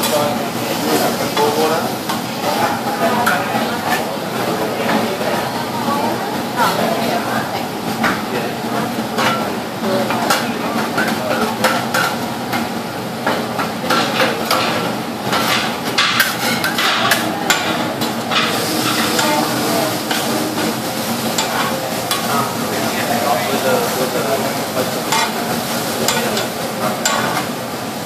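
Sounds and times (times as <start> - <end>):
food sizzling: 14.4 - 28.0.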